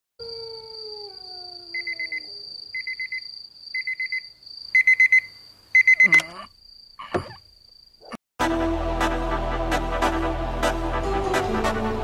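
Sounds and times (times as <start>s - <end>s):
alarm clock beeping: 2.8s - 6.3s.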